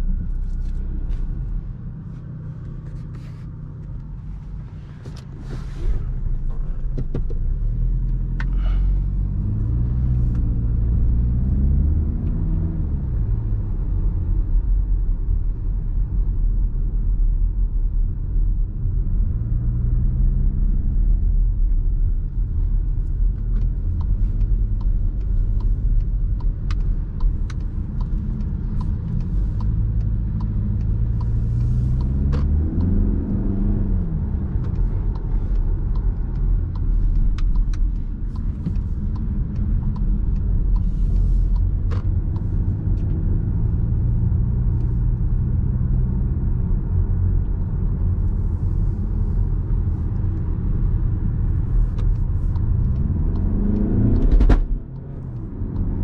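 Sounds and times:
diesel car engine: 0.0 - 56.0
road rumble: 0.0 - 56.0.

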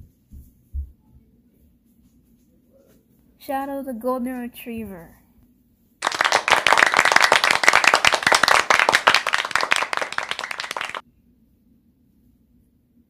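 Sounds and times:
hands clapping: 6.0 - 11.0.

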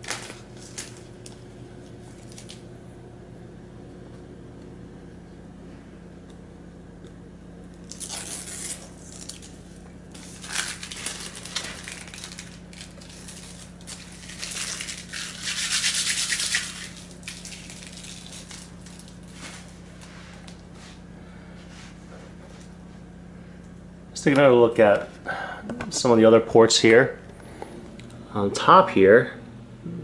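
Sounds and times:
plastic crinkling and tearing: 0.0 - 1.4, 2.1 - 2.6, 7.8 - 19.7
low hum: 0.0 - 30.0.

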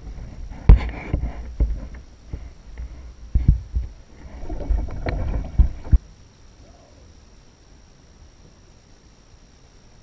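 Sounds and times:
rustling: 0.0 - 6.9.

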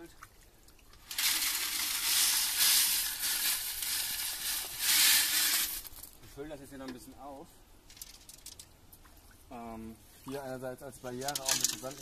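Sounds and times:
sand and gravel pouring from bucket: 1.1 - 6.2.

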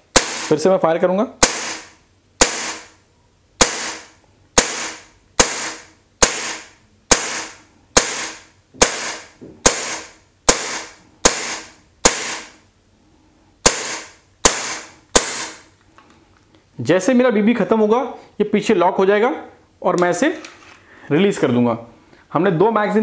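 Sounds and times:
air pistol shots: 0.0 - 0.6, 1.4 - 3.0, 3.6 - 12.6, 13.6 - 15.7
shot echo: 0.1 - 0.6, 1.4 - 3.0, 3.6 - 12.6, 13.6 - 15.6.

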